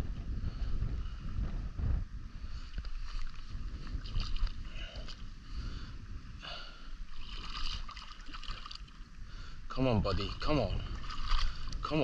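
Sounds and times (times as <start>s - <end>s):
wind rumbling on microphone: 0.0s - 12.0s
fish splashing in water: 7.1s - 9.0s, 10.8s - 11.8s.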